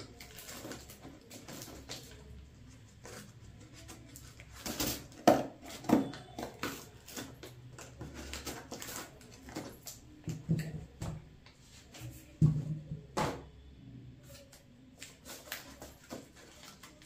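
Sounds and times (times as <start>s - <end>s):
cardboard crinkling and knocking: 3.0s - 11.2s, 15.2s - 17.0s.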